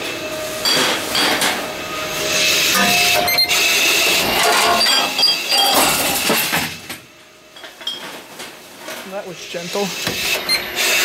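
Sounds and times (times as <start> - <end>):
machine shredding containers: 0.0 - 7.0.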